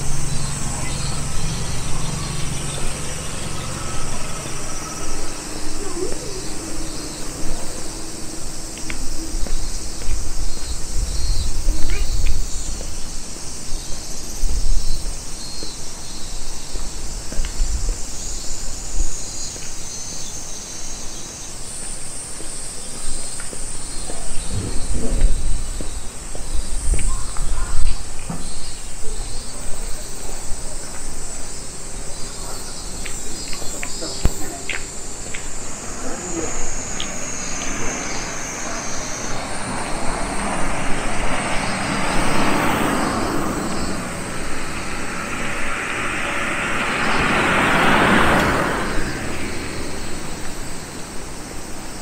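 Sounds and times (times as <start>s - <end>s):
low rumbles: 0.0s - 15.2s, 24.4s - 27.9s, 34.2s - 52.0s
insects chirring: 0.0s - 52.0s.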